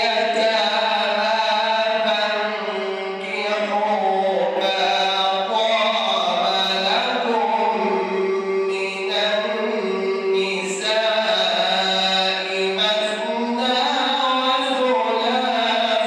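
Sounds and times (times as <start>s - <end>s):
man chanting recitation: 0.0s - 16.0s.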